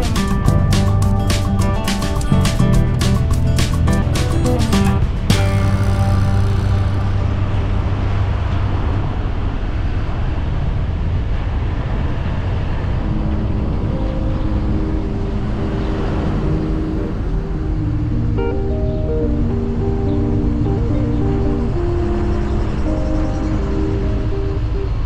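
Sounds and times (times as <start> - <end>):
car road and wind noise: 6.3 - 25.0
soft background music: 13.0 - 25.0.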